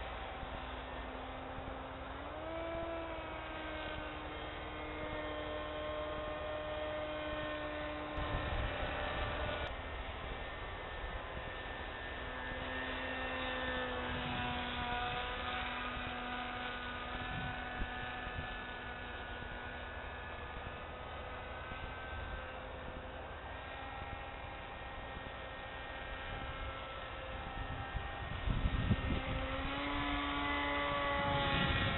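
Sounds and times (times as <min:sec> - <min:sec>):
model airplane motor humming: 0:00.0 - 0:31.9.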